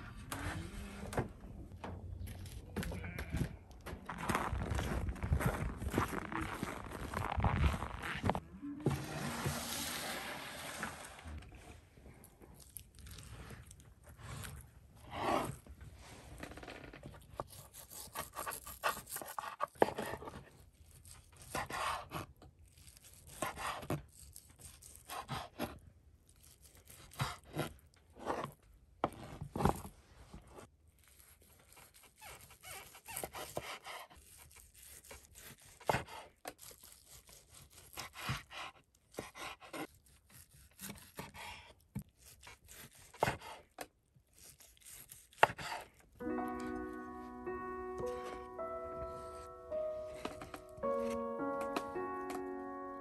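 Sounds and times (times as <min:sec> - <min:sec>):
tearing and crunching: 0:02.2 - 0:08.4, 0:12.2 - 0:14.7, 0:20.5 - 0:25.2, 0:26.2 - 0:28.2, 0:30.8 - 0:35.9, 0:36.5 - 0:38.1, 0:44.2 - 0:46.2
knife cutting and scraping meat: 0:12.2 - 0:15.7, 0:16.3 - 0:29.9, 0:30.6 - 0:46.2.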